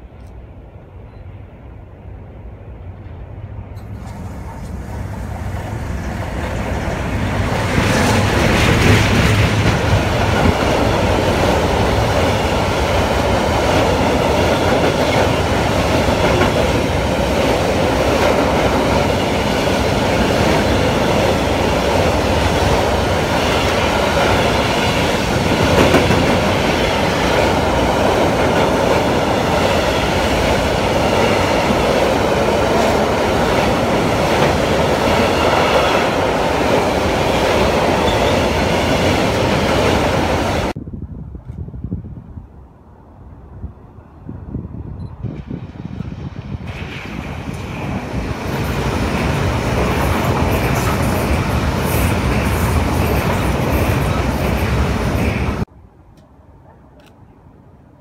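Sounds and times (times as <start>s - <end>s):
train wheels rumbling on rail: 0.0s - 41.6s, 44.6s - 55.7s
loud train knock: 5.5s - 31.9s.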